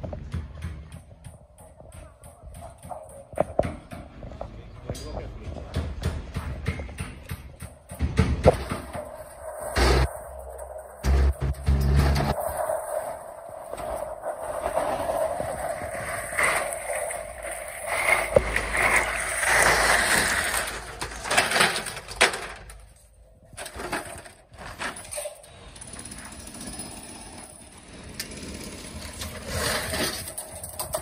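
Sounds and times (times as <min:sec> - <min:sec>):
metal clanks and rattles: 0:13.2 - 0:31.0.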